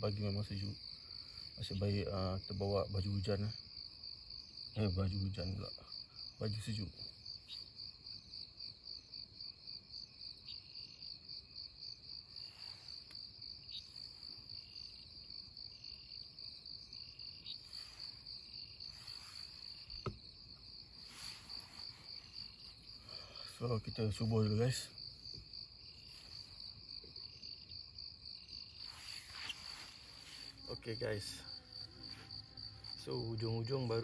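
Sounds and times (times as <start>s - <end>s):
insects chirping: 0.0s - 34.0s.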